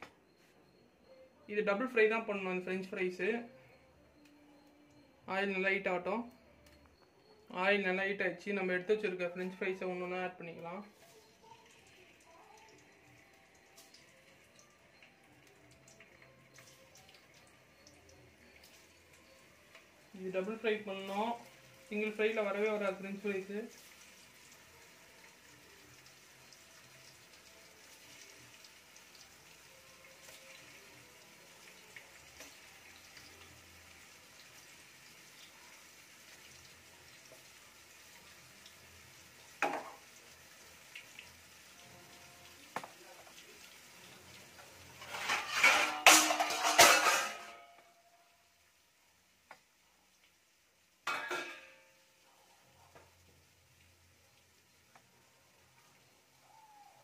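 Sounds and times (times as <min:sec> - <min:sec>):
potatoes sizzling in oil: 0:08.5 - 0:57.0
steel plates clattering: 0:45.0 - 0:47.8.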